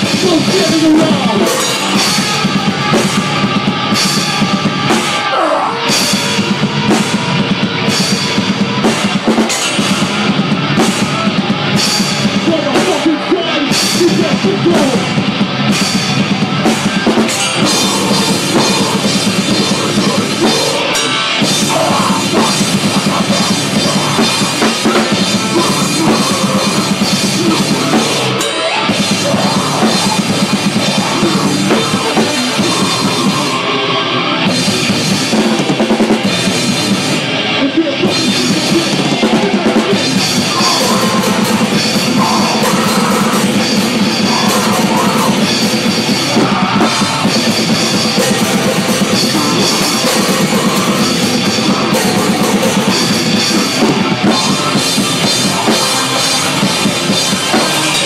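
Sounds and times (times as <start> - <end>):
loud busy drums: 0.0 - 58.0
metal band playing live: 0.0 - 58.0.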